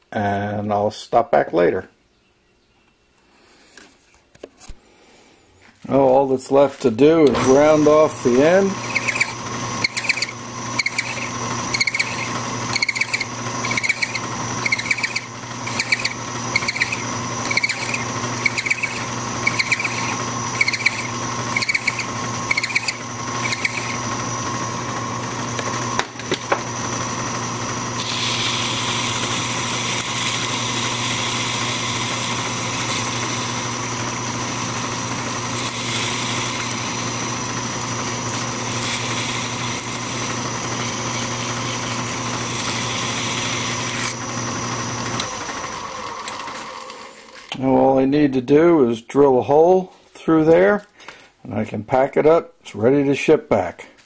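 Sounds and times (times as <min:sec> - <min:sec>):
metal lathe running: 0:07.0 - 0:47.6
hand file strokes on steel: 0:08.8 - 0:24.0.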